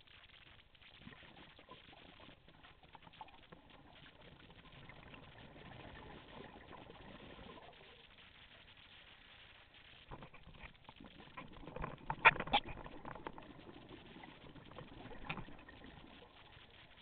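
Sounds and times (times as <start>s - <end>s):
underwater bubbles gurgling: 0.0s - 17.0s.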